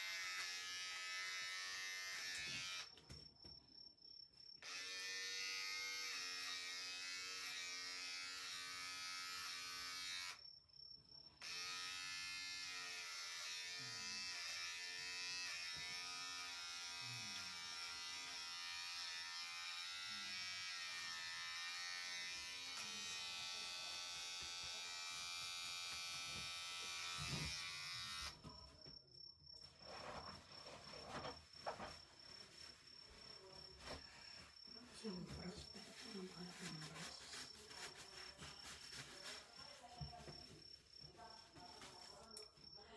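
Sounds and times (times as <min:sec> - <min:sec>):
electric hair clippers buzzing: 0:00.0 - 0:02.9, 0:04.6 - 0:10.4, 0:11.4 - 0:28.4.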